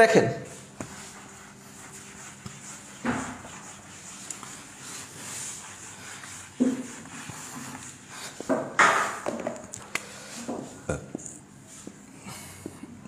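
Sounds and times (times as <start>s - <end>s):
cloth wiping whiteboard: 0.0s - 9.4s.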